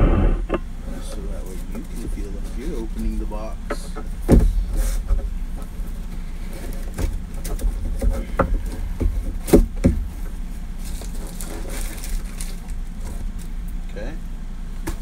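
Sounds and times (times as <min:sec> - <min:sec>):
steady low hum: 0:00.0 - 0:15.0
cardboard box knocks and scrapes: 0:04.2 - 0:05.3, 0:06.7 - 0:10.3.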